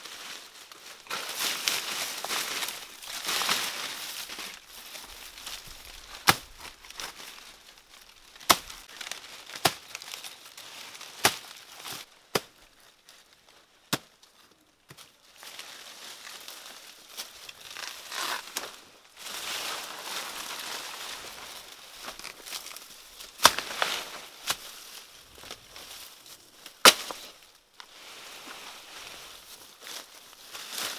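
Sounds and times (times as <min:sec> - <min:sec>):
dry leaves crackling and rustling: 0:00.0 - 0:12.1, 0:15.0 - 0:30.9
chopping into banana trunk: 0:06.2 - 0:06.5, 0:08.5 - 0:08.7, 0:23.4 - 0:23.8, 0:26.8 - 0:27.2.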